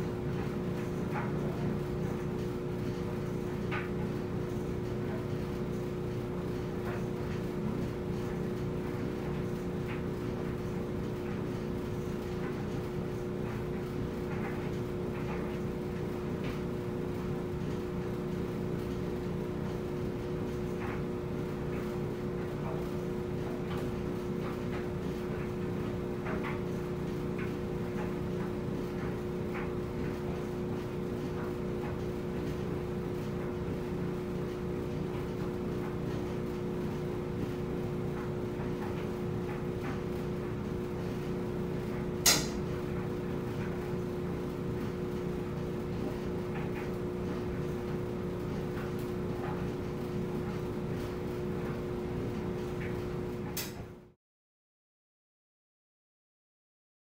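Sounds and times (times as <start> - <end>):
clothes dryer running: 0.0 - 54.2
sharp click: 42.2 - 42.6, 53.6 - 53.8.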